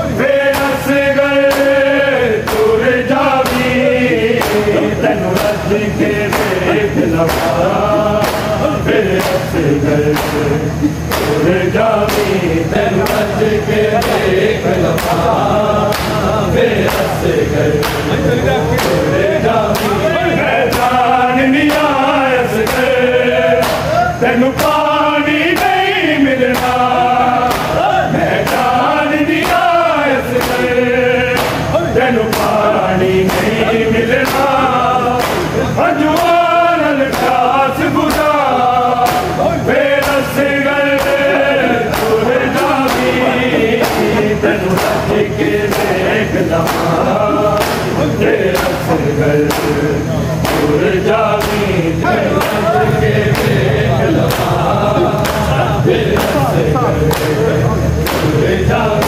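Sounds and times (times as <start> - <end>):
men chanting together: 0.0 - 59.0
hands slapping chests: 7.2 - 9.5, 11.1 - 11.4, 15.9 - 16.2, 17.8 - 18.1, 23.6 - 23.9, 27.5 - 27.8, 30.3 - 30.7, 31.4 - 31.7, 32.3 - 32.6, 35.2 - 35.6, 41.0 - 45.1, 46.6 - 47.0, 47.6 - 48.9, 49.5 - 49.8, 50.4 - 50.8, 51.4 - 51.7, 54.3 - 54.6.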